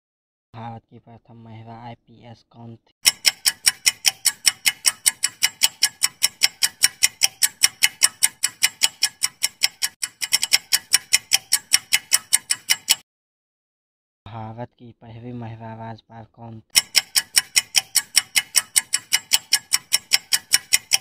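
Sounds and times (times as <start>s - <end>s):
countdown timer ticking: 3.0s - 13.0s, 16.8s - 21.0s.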